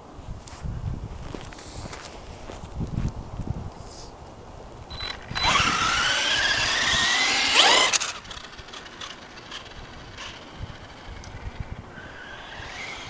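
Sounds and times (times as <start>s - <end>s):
electric motor and gear whine: 4.9s - 13.0s.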